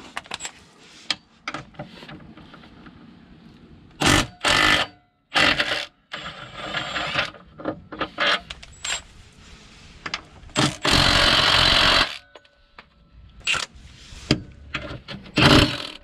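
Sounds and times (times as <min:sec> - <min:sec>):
impact wrench hammering on a bolt: 0:15.4 - 0:16.0.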